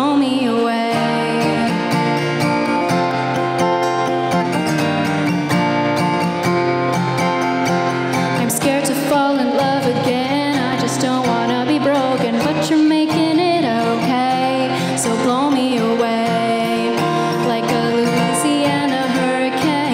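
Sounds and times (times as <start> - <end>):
woman singing: 0.0 - 2.6, 8.2 - 19.9
acoustic guitar strumming: 0.0 - 19.9.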